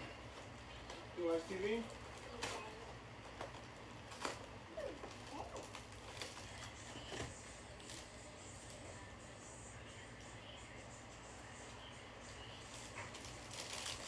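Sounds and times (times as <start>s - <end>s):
snack wrappers rustling: 3.2s - 8.8s, 12.5s - 14.0s.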